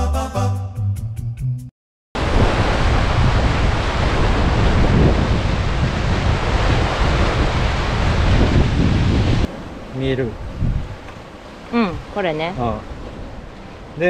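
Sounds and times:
surf breaking on rocks: 0:02.2 - 0:10.3
wind buffeting microphone: 0:02.2 - 0:14.0.

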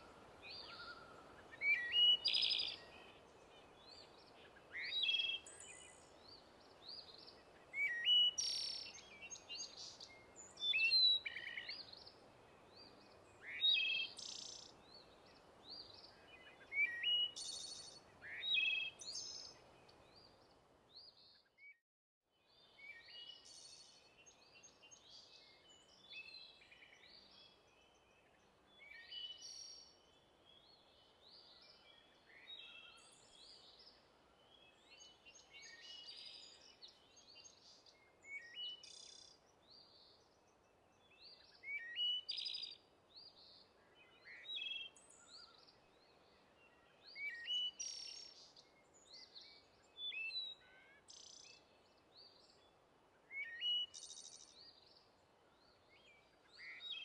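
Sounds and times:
steady background hiss: 0:00.0 - 0:20.6
songbirds chirping and trilling: 0:00.0 - 0:21.6, 0:22.4 - 0:57.0.

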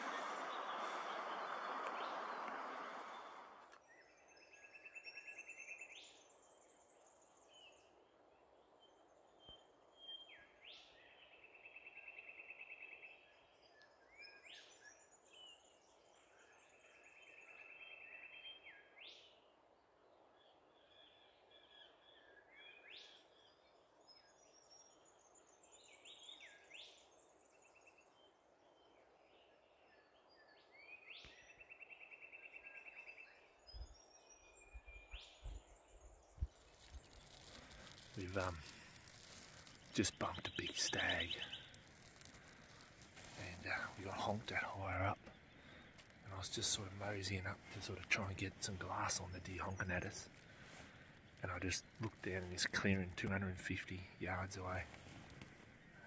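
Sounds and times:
background hiss: 0:35.2 - 0:56.0.

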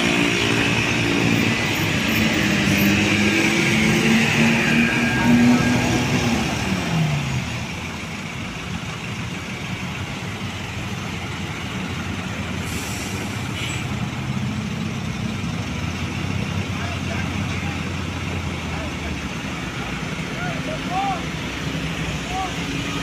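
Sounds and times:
vehicle passing by: 0:00.0 - 0:07.7
truck engines under load: 0:00.0 - 0:23.0.

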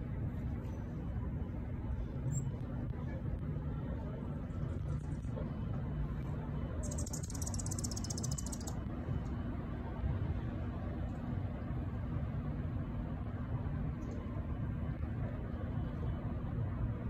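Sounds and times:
low outdoor rumble: 0:00.0 - 0:17.0
high rapid pulsing trill: 0:06.8 - 0:08.9.

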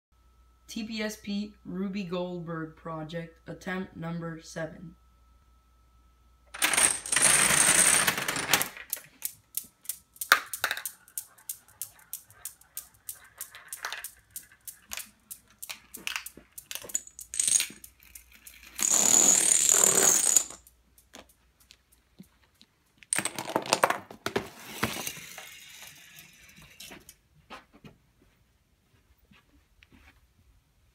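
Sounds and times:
dominoes toppling: 0:06.6 - 0:21.3.

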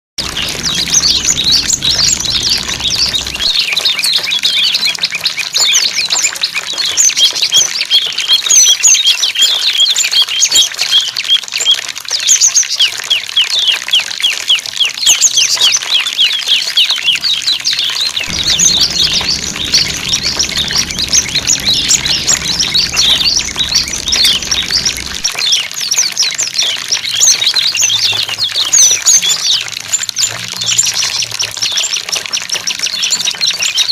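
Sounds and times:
songbirds chirping chorus: 0:00.2 - 0:03.8, 0:18.2 - 0:25.3.

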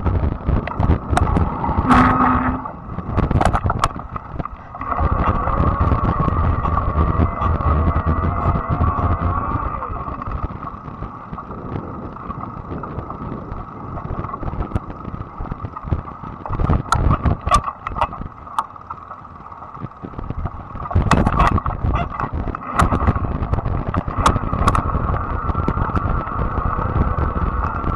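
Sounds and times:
bike rattling over bumps: 0:00.0 - 0:27.9
wind rumble on microphone: 0:00.0 - 0:27.9
electric motor whine: 0:04.8 - 0:10.3.

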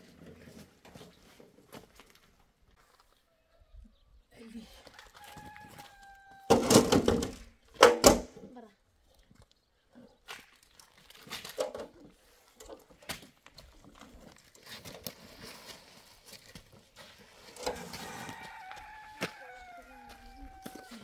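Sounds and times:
rooster crowing: 0:05.0 - 0:06.9, 0:17.6 - 0:21.0
stones knocking into metal wheelbarrow: 0:06.5 - 0:08.3.

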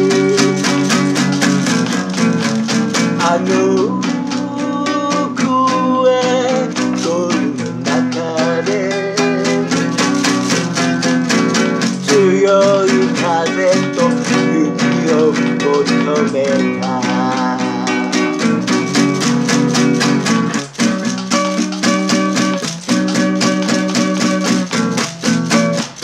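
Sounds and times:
man singing: 0:00.0 - 0:20.3
classical guitar strumming: 0:00.0 - 0:26.0.

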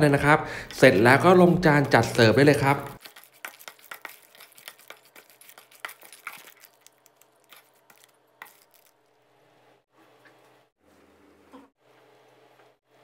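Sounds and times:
food crunching in metal bowl: 0:02.8 - 0:09.1.

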